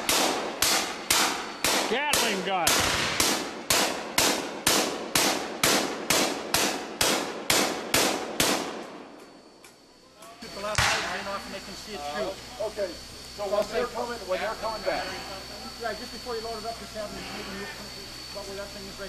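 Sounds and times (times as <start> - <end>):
gatling gun firing blanks: 0.0 - 9.0.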